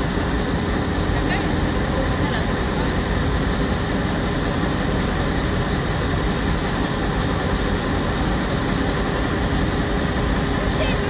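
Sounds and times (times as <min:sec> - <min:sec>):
boat engine running: 0:00.0 - 0:11.0.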